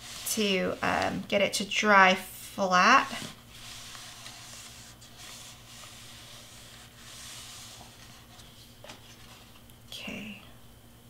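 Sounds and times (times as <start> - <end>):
steady hiss and low hum: 0.0 - 11.0
soft rustles of cardstock: 3.0 - 9.7.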